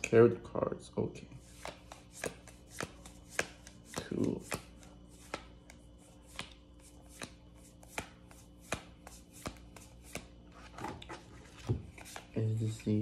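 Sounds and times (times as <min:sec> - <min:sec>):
cards tapping on a table: 0:01.6 - 0:10.3.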